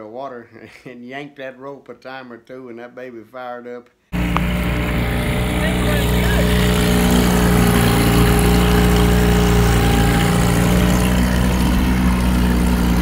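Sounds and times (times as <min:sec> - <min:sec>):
outboard motor running: 0:04.2 - 0:13.0
propeller churning water: 0:04.2 - 0:13.0.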